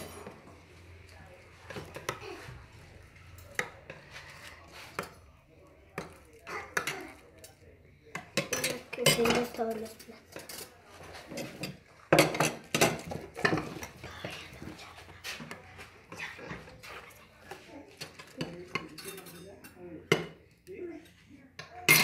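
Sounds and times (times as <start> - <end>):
spoons clinking on ceramic plates: 0.0 - 0.4, 5.9 - 14.0, 17.5 - 22.0.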